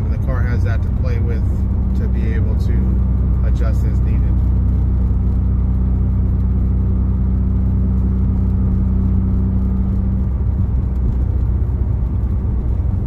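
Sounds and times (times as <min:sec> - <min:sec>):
car engine drone from cabin: 0:00.0 - 0:13.0
road noise: 0:00.0 - 0:13.0.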